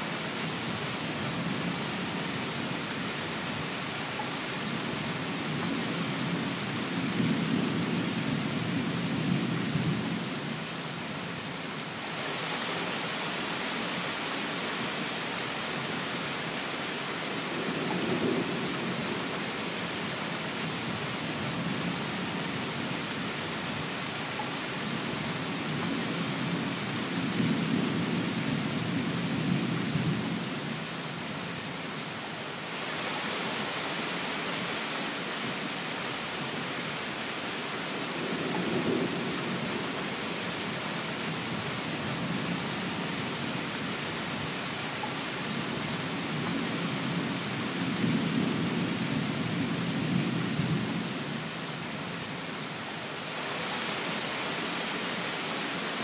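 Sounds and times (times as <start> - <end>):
heavy rain: 0.0 - 56.0
low rolling thunder: 38.1 - 40.0.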